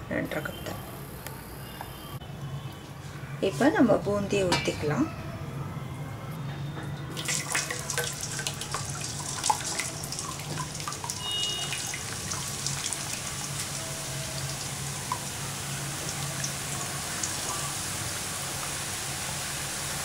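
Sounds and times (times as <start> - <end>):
batter sizzling in hot oil: 7.1 - 20.0.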